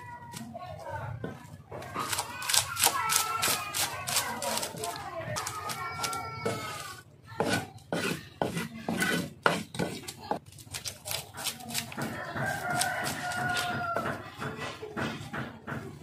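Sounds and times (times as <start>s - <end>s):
knife scraping fish scales: 7.4s - 13.7s.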